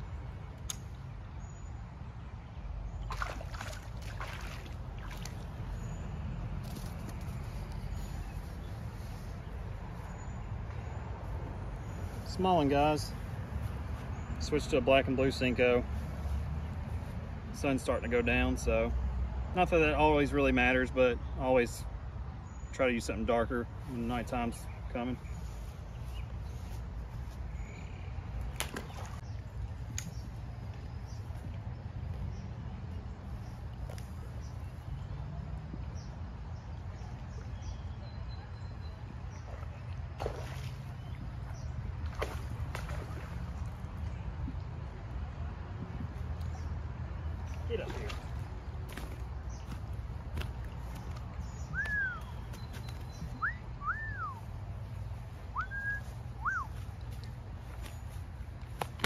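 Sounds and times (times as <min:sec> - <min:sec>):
fish splashing into water: 0:03.1 - 0:05.6, 0:28.5 - 0:29.2, 0:39.4 - 0:41.0, 0:42.0 - 0:43.8
whistled notes: 0:51.7 - 0:52.4, 0:53.4 - 0:54.4, 0:55.5 - 0:56.7.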